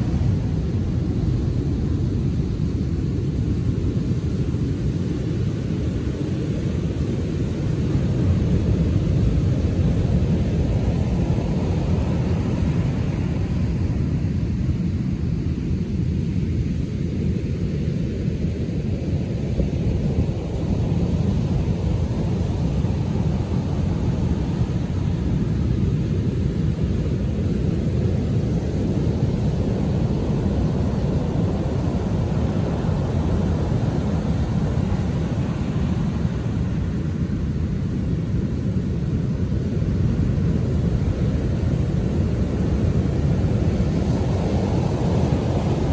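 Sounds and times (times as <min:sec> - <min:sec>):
waves breaking on sand: 0:19.1 - 0:45.9.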